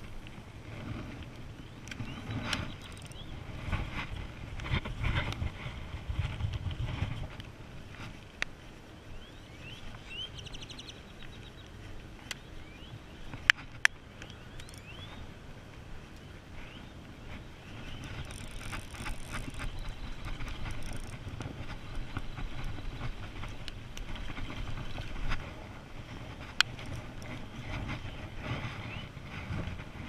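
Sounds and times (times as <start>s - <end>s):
fishing reel being cranked: 2.8s - 3.2s, 14.6s - 14.9s, 18.0s - 21.3s.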